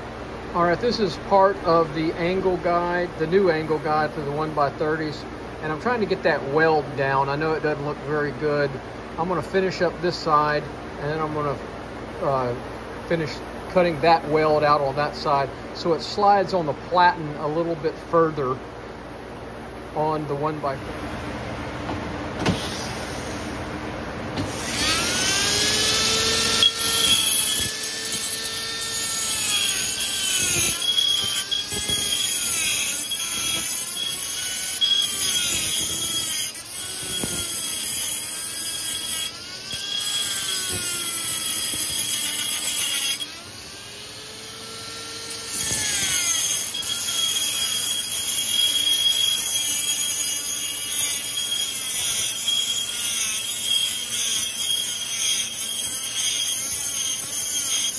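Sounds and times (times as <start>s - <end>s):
rotary tool grinding metal: 24.5s - 57.9s.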